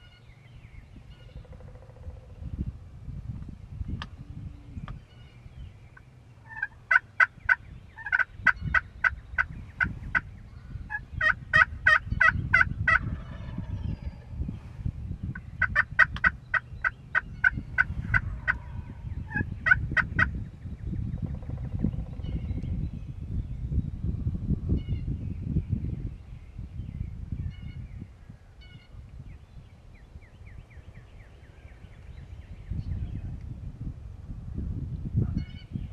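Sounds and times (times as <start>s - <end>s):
low background rumble: 0.0s - 35.9s
wild turkeys yelping: 6.4s - 10.3s, 10.9s - 14.2s, 15.6s - 20.3s.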